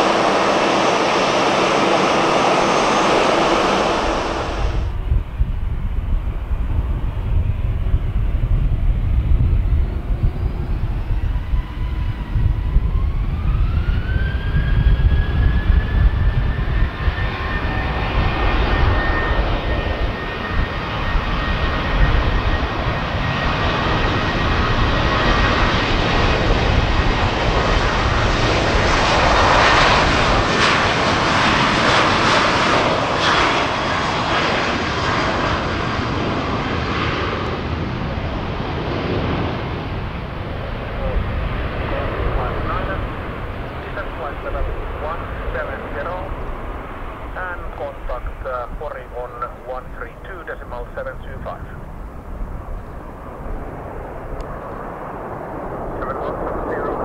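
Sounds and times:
jet engines spooling up: 0:00.0 - 0:05.0, 0:10.4 - 0:57.0
high rising whine: 0:47.2 - 0:57.0.

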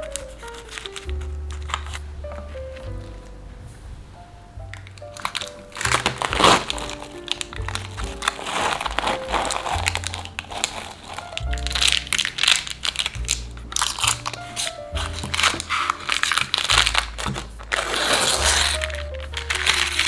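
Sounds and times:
paper and plastic film crinkling: 0:00.0 - 0:03.4, 0:04.7 - 0:20.0
background music: 0:00.0 - 0:20.0.

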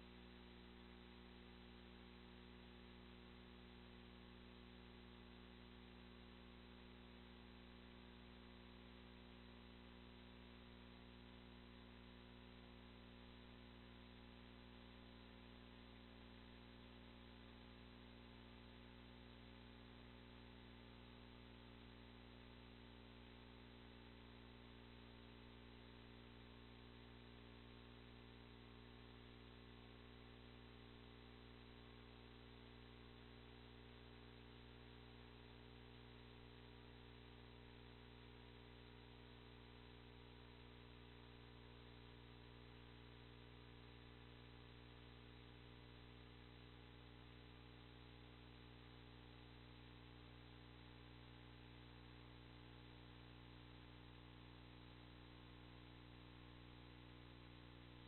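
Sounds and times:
faint electrical hum with hiss: 0:00.0 - 0:58.0.

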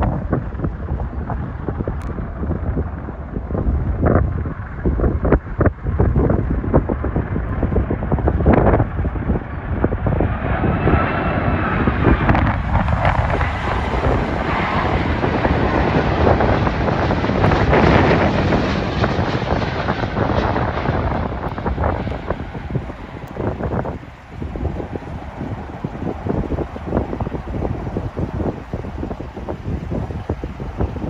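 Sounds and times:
jet engines rumbling: 0:00.0 - 0:31.0
wind buffeting microphone: 0:00.0 - 0:31.0.

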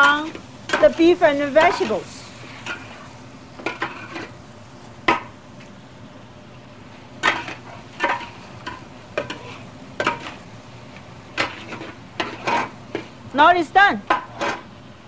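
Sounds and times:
spatula clanking and scraping wok: 0:00.0 - 0:04.4, 0:07.2 - 0:10.4, 0:11.3 - 0:13.1, 0:14.1 - 0:14.7
food sizzling in a wok: 0:00.0 - 0:15.0.

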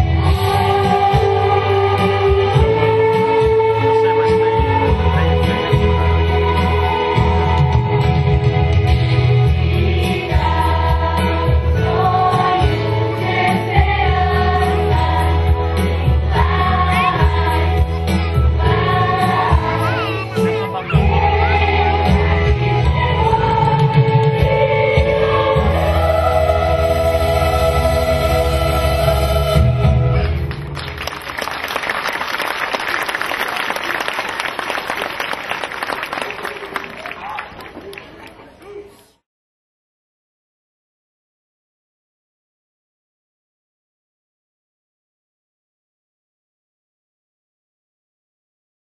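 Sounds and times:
children's choir singing: 0:00.0 - 0:30.3
bass accompaniment: 0:00.0 - 0:31.5
audience applauding: 0:30.5 - 0:38.5.

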